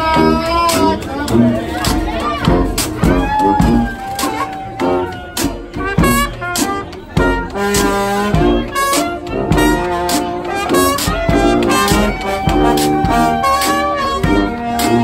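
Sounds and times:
jazz band playing: 0:00.0 - 0:15.0.

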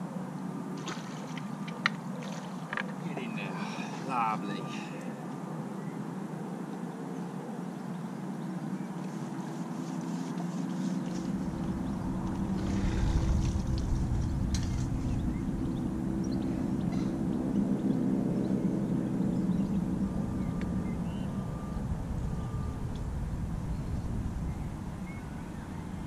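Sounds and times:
low engine drone: 0:09.1 - 0:26.0
low rumble: 0:11.1 - 0:26.0.

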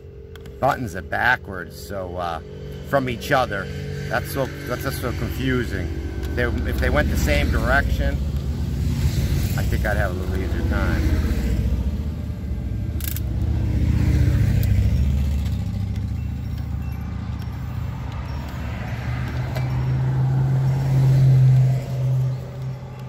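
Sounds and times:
electric motors whirring: 0:03.7 - 0:23.0
sharp click: 0:13.0 - 0:13.3.

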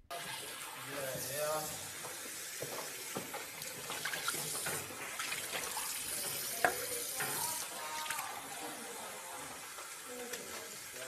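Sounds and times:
tap running into a sink: 0:00.2 - 0:08.2.

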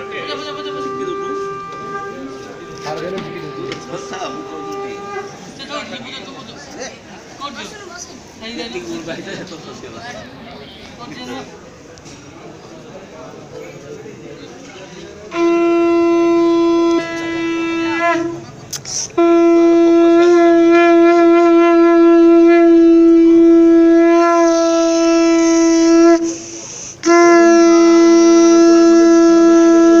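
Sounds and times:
conch shell blasts: 0:00.0 - 0:05.4, 0:15.3 - 0:30.0.

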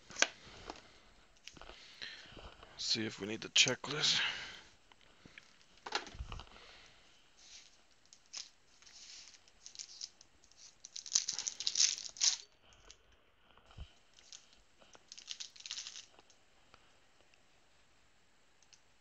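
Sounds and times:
cards and paper rustling: 0:07.4 - 0:12.4, 0:14.1 - 0:16.3.

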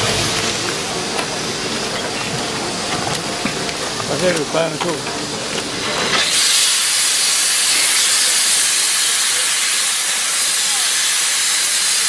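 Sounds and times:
high-pressure jet hissing: 0:05.8 - 0:12.0.

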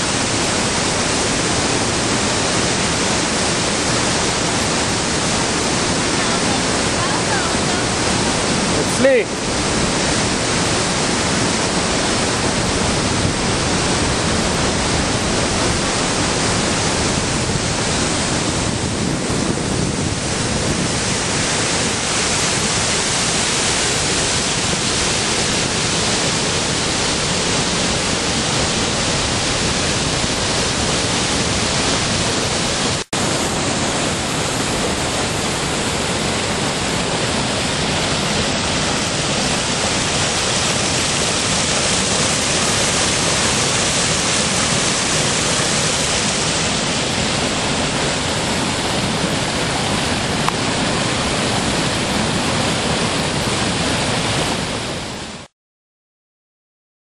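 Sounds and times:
waterfall pouring: 0:00.0 - 0:55.0
flood water rushing over rocks: 0:00.0 - 0:55.5.

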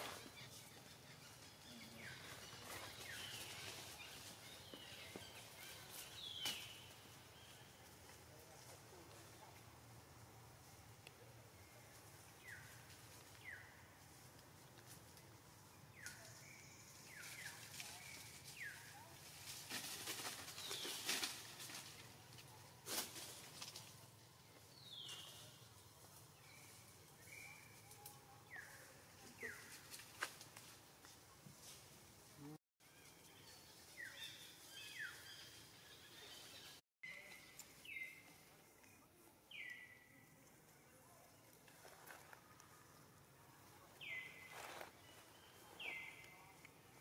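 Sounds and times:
rustling of dry leaves: 0:00.0 - 0:47.0
twig crackle: 0:17.1 - 0:24.0, 0:41.5 - 0:43.0.

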